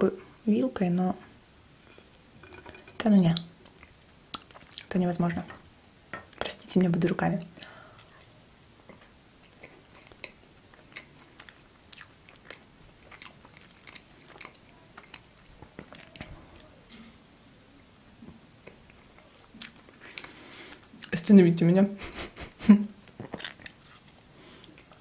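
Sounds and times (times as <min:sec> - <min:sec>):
mouth clicks and small crackles: 0:02.1 - 0:08.2, 0:08.8 - 0:17.0, 0:18.2 - 0:21.3, 0:23.0 - 0:25.0
biting and chewing cake: 0:23.1 - 0:25.0.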